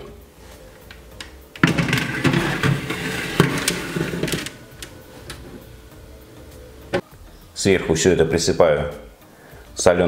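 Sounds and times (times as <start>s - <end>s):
baking tray scraping into oven: 1.6s - 4.7s.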